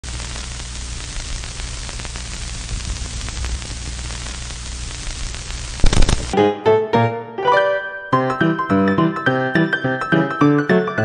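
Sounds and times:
crackling hiss: 0.0s - 6.4s
loud pops: 1.9s - 6.4s.

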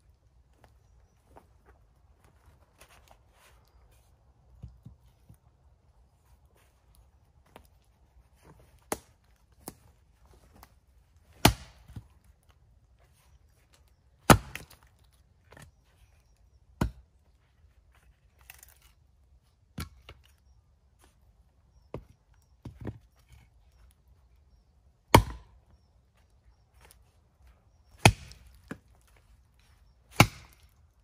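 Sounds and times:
axe chopping firewood: 8.8s - 9.8s, 11.2s - 12.1s, 14.2s - 14.9s, 16.7s - 17.2s, 19.7s - 20.3s, 25.0s - 25.6s, 27.9s - 28.9s, 30.0s - 30.8s.

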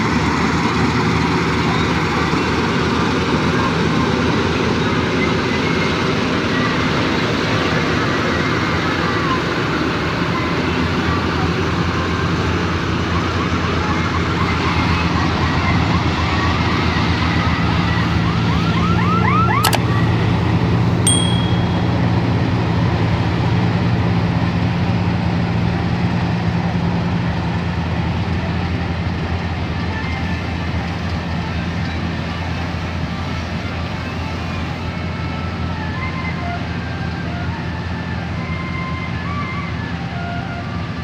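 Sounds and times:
combine harvester engine drone: 0.0s - 41.0s
sharp click: 19.6s - 19.9s.

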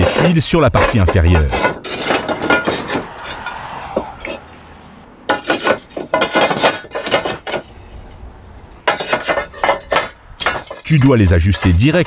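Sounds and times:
roof tiles knocking and clinking: 0.0s - 3.1s, 5.3s - 7.9s, 8.8s - 12.0s.

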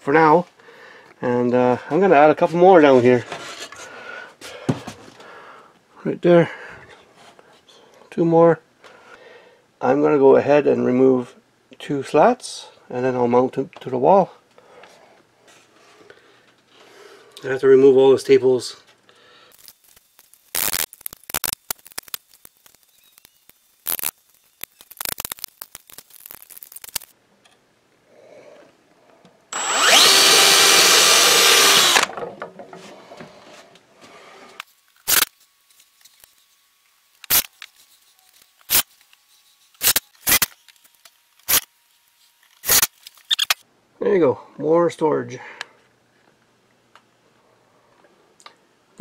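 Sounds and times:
power drill drilling wood: 29.5s - 32.2s.

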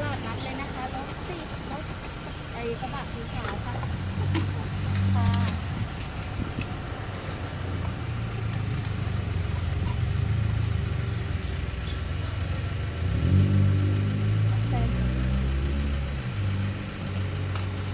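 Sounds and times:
street traffic: 0.0s - 17.9s
vehicle engine idling: 0.0s - 17.9s.

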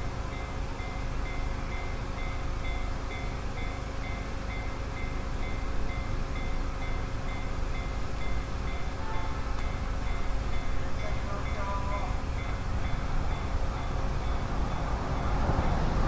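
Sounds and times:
level crossing bell ringing: 10.1s - 14.4s.

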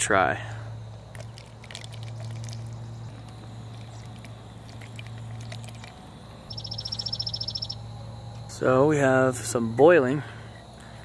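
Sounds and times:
camp stove burning hum: 0.0s - 11.0s
mushrooms splashing into water: 1.1s - 6.0s.

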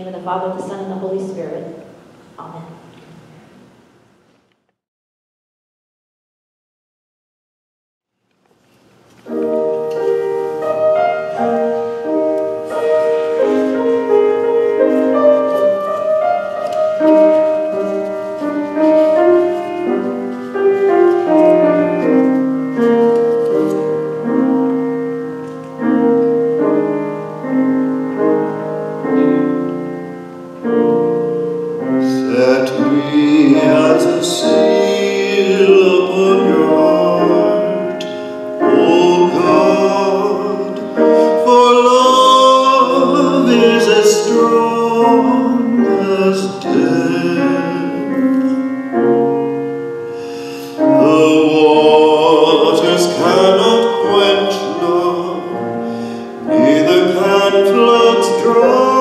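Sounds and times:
piano playing: 9.0s - 59.0s
man singing with vibrato: 31.9s - 48.6s, 50.1s - 59.0s.

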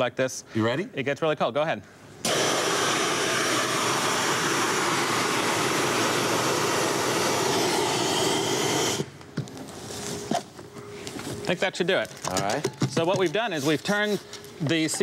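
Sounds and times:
fire extinguisher hissing: 2.2s - 9.2s.

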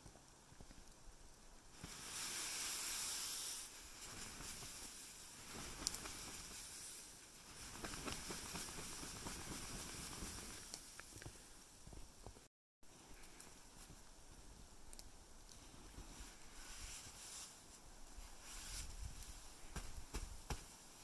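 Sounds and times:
snow swishing off fabric: 1.7s - 11.0s, 15.9s - 21.0s.

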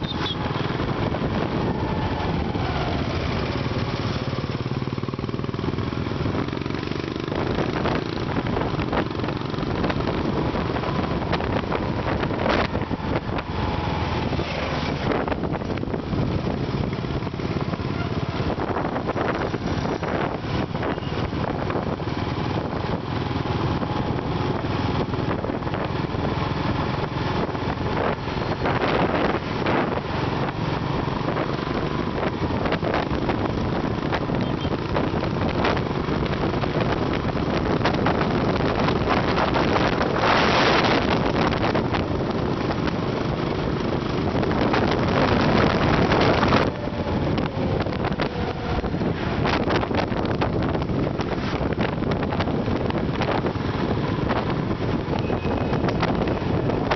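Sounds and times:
motorcycle engine: 0.0s - 56.9s
tyre road noise: 0.0s - 56.9s
wind rushing over microphone: 0.0s - 56.9s.

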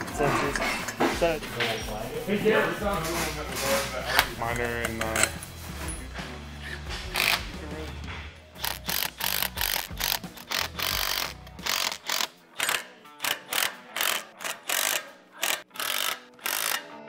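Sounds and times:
cordless driver running nuts: 7.1s - 7.5s, 8.6s - 16.9s.

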